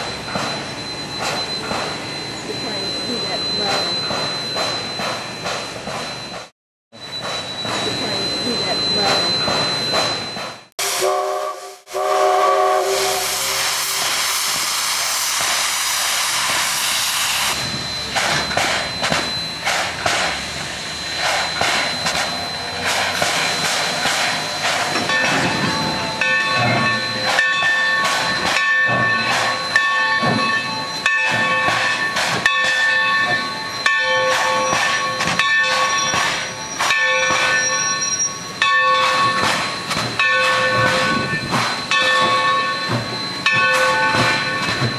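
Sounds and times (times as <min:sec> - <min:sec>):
locomotive bell ringing: 0:00.0 - 0:10.7, 0:16.8 - 0:44.9
steam locomotive exhaust chuffing: 0:10.2 - 0:44.9
steam hissing: 0:10.8 - 0:27.4.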